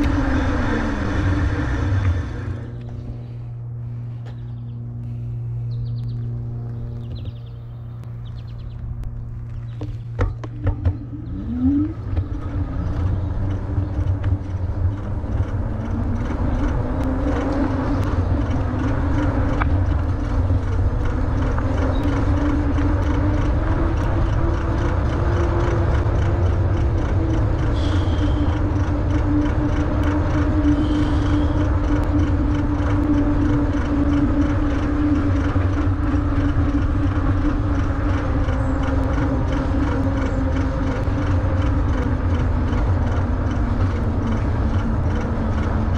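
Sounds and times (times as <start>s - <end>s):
electric motor whine: 0.0s - 45.9s
wind rumble on microphone: 0.0s - 45.9s
tyre noise: 9.4s - 18.0s.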